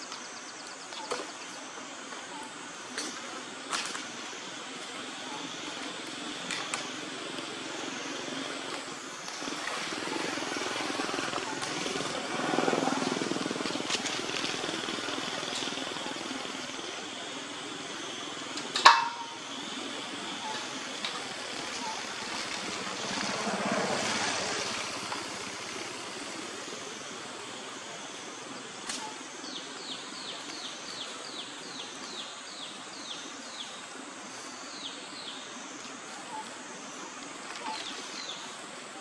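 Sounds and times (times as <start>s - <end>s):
steady outdoor hiss: 0.0s - 39.0s
rushing noise: 5.5s - 28.7s.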